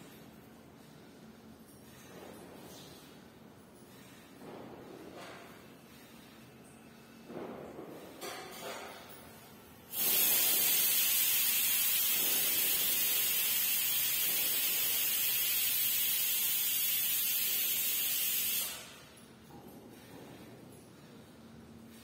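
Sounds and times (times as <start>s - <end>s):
loud steady hiss: 9.9s - 19.0s.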